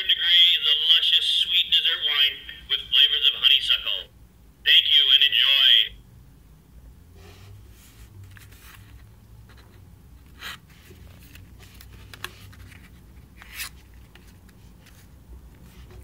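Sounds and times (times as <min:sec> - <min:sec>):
cardboard card scrapes and rustles: 0:07.2 - 0:16.0.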